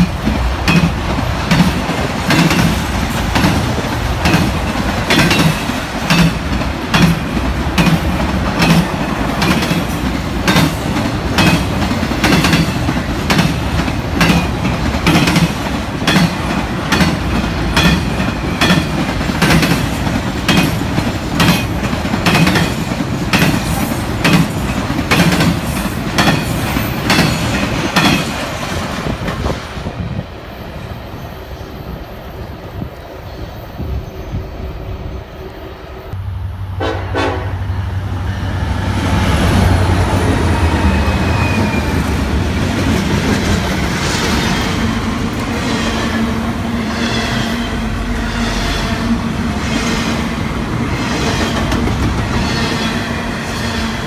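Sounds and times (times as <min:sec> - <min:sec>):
wheels clacking over rail joints: 0:00.0 - 0:29.5
freight train rumbling: 0:00.0 - 0:54.0.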